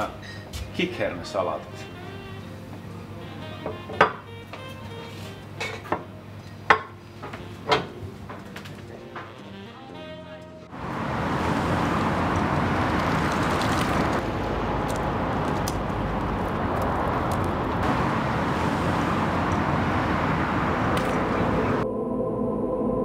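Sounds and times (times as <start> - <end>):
music with held notes: 0.0 - 10.7
passing cars: 7.5 - 21.8.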